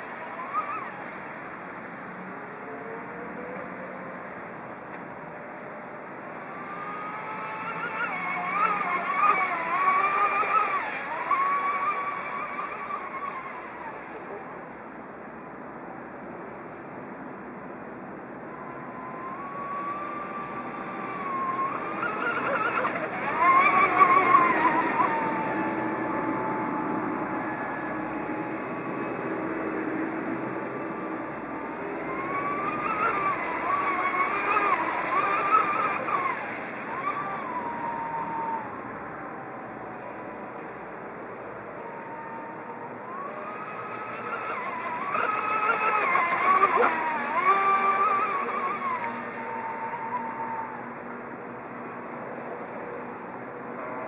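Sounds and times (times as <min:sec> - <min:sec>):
toy boat motor whine: 0:00.0 - 0:54.0.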